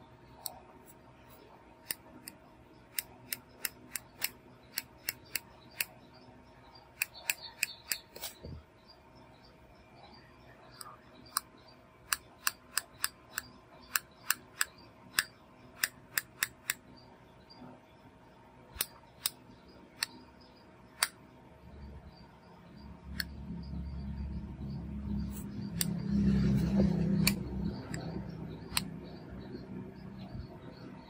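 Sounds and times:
low hum: 16.9 - 31.0.

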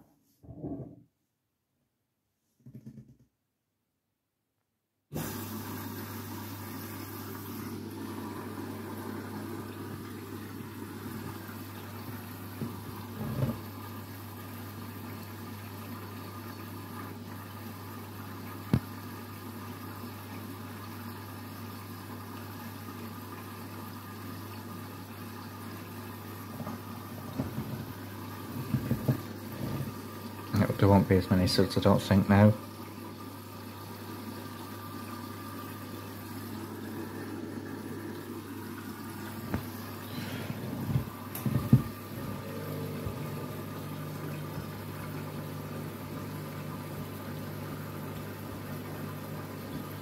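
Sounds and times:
washing machine motor hum: 5.1 - 50.0
soft knocks: 40.8 - 42.0.

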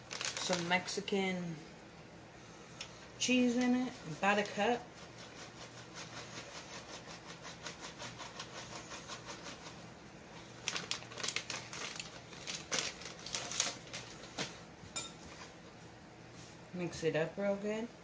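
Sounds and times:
cheese rustling out of bag: 0.0 - 1.0, 10.3 - 14.6
plastic bag crinkling: 0.0 - 1.0, 10.4 - 14.5.

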